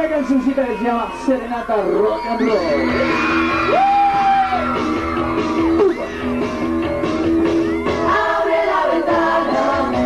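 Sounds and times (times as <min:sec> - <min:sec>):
rock band playing: 0:02.7 - 0:08.4.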